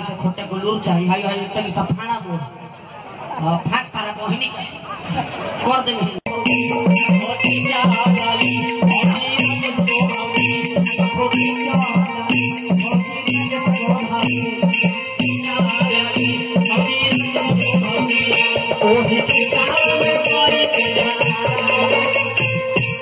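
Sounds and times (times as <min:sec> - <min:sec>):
held instrumental tones: 0:06.2 - 0:23.0
fast drum beat: 0:06.3 - 0:23.0
shaker-like percussion: 0:06.3 - 0:23.0.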